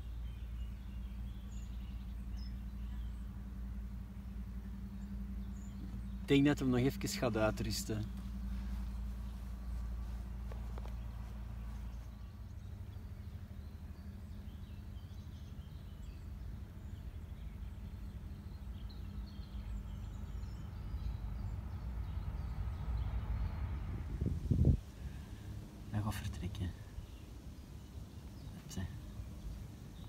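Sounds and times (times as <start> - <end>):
bird chirps: 0.0 - 23.9
steady low rumble: 0.0 - 30.0.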